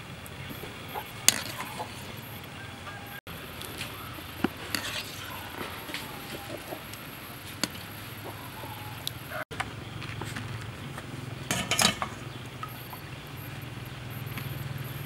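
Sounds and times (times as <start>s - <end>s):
farm fowl honking: 0.6s - 3.2s, 5.1s - 7.0s, 8.2s - 9.4s.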